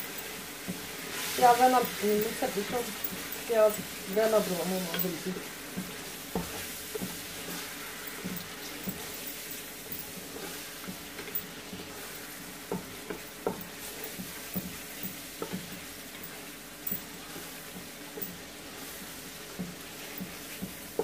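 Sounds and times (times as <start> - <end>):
masala sizzling in oil: 0.0 - 21.0
wooden spoon knocking on pot: 1.5 - 7.2, 12.7 - 14.8.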